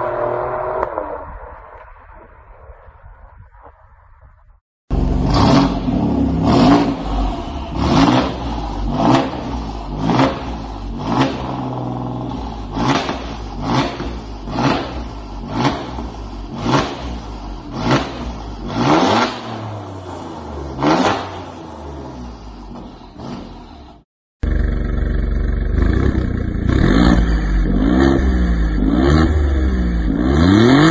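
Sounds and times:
car engine revving: 4.9 - 30.9
car engine idling: 21.6 - 27.6.

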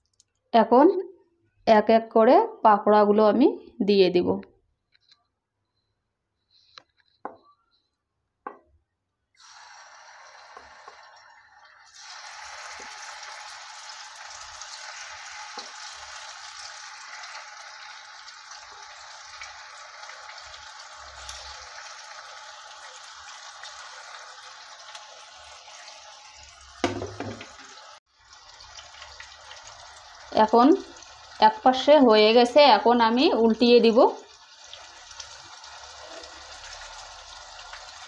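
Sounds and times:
food sizzling in hot oil: 9.4 - 38.0.

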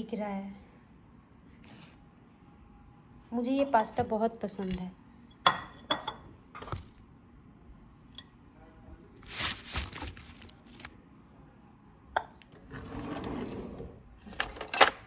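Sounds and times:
rustling of takeaway trays: 12.4 - 15.0.

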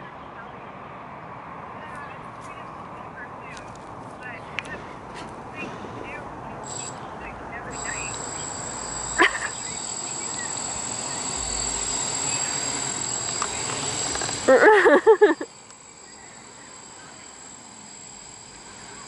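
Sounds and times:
quadcopter motors whining: 6.1 - 19.0.

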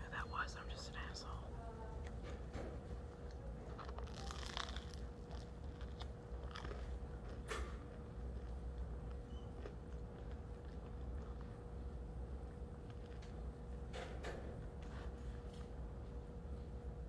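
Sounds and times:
steady low hum: 0.0 - 17.0
chewing bread: 2.0 - 13.9
crust crunching: 3.6 - 7.5.

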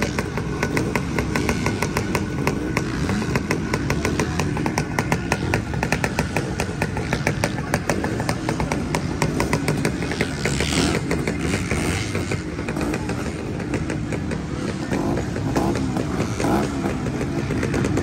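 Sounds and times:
two-stroke motorbike engines running: 0.0 - 18.0.

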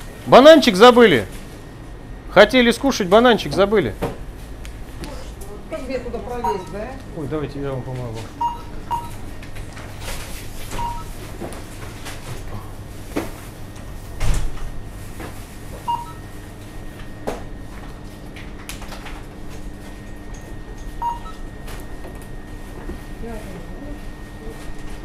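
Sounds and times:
steady hum: 0.0 - 25.0
barcode scanner beeps: 6.4 - 6.9, 8.4 - 9.2, 10.7 - 11.1, 15.9 - 16.2, 21.0 - 21.4.

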